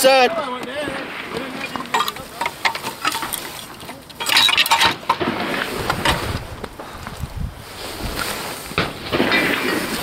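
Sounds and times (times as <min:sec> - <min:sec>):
steel target plates clanking: 0:01.1 - 0:06.4, 0:08.8 - 0:10.0.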